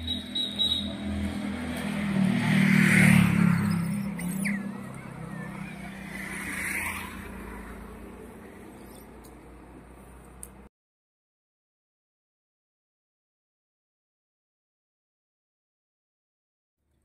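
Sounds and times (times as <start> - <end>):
motor vehicle passing by: 0.0 - 10.4.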